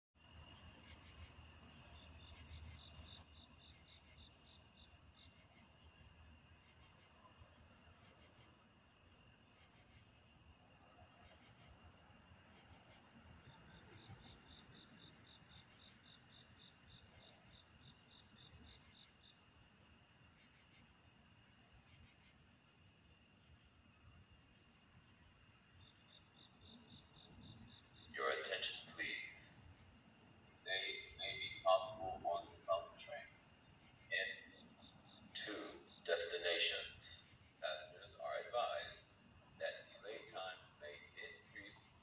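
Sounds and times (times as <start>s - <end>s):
crickets trilling: 0.2s - 42.0s.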